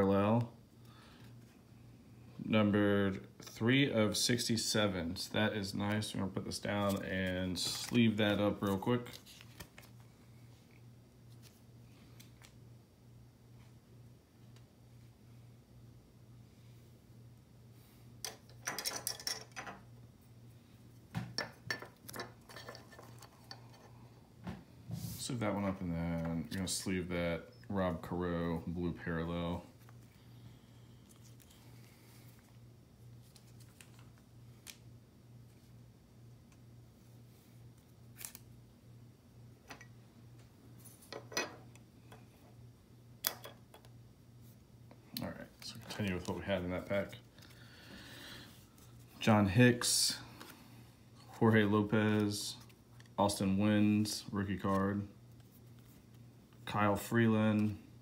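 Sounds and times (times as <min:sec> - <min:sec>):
cards sliding into plastic sleeves: 0:06.7 - 0:10.1.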